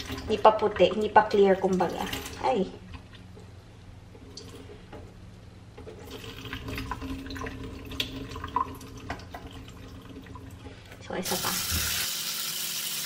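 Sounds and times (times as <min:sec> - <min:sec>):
water poured into sink: 0:05.9 - 0:10.6, 0:11.3 - 0:13.0.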